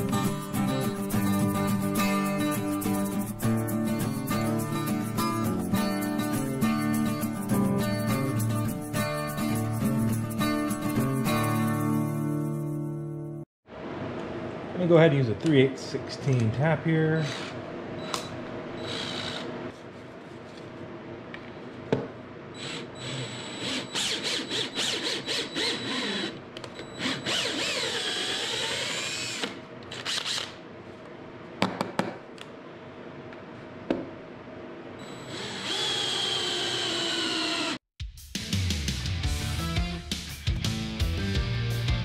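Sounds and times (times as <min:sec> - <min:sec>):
cordless drill motor whining: 0:17.2 - 0:19.5, 0:22.6 - 0:30.6, 0:35.0 - 0:37.8.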